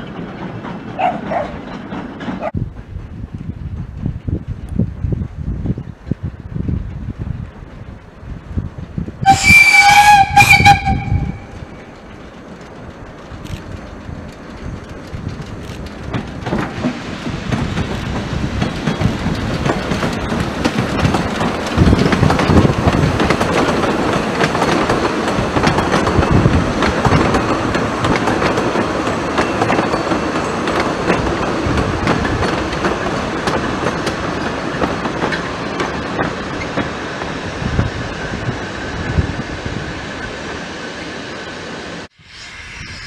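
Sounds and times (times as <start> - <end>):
wheels clacking over rail joints: 0.0 - 4.7, 8.8 - 39.4
steam train rumbling past: 0.0 - 43.0.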